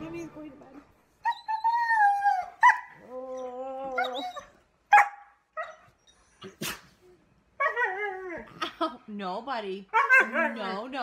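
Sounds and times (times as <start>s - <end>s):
dog yelping: 1.2s - 6.8s, 9.9s - 10.8s
dog barking: 4.9s - 5.3s.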